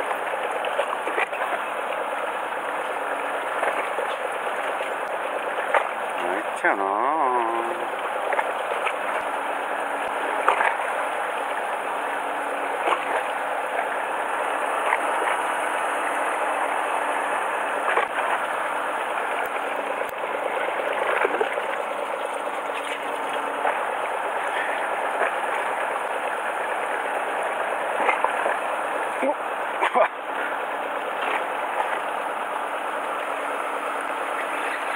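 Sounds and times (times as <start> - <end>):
water lapping against boat hull: 0.0 - 34.9
water slapping hull: 0.0 - 34.9.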